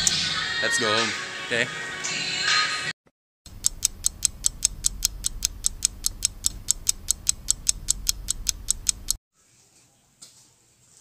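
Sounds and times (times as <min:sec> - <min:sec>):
fast clock ticking: 0:03.5 - 0:09.2.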